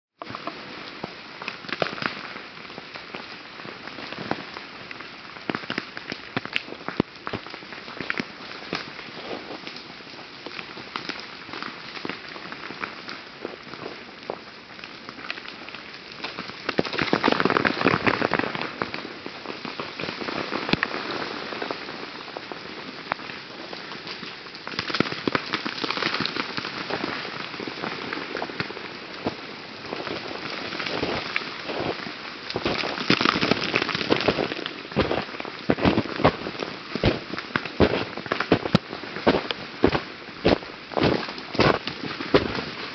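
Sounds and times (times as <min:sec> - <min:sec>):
ice cracking and clattering: 0:16.2 - 0:19.0, 0:24.1 - 0:42.9.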